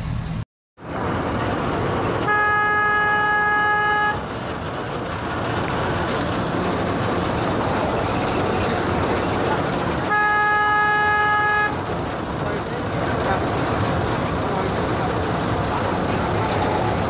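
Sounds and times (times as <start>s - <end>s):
horn steady note: 2.2s - 4.3s, 10.0s - 11.8s
continuous rushing noise: 4.1s - 17.0s.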